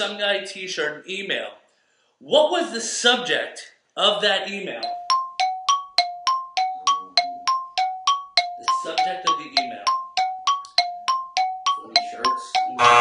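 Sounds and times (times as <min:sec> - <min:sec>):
two-pitch countdown chimes: 0:04.8 - 0:13.0.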